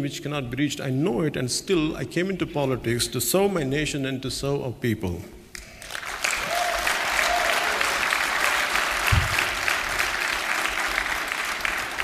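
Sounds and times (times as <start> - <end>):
audience applauding: 5.6 - 12.0
low thump: 9.1 - 9.6.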